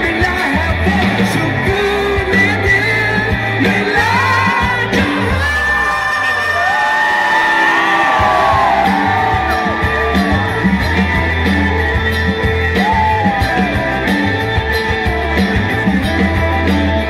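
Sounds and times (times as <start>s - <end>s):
rock band playing: 0.0s - 17.0s
sliding guitar melody: 7.6s - 17.0s.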